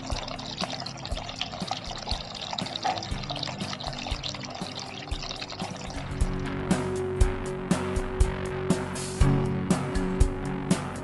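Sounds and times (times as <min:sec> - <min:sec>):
water trickling and splashing: 0:00.0 - 0:06.5
background music: 0:00.0 - 0:11.0.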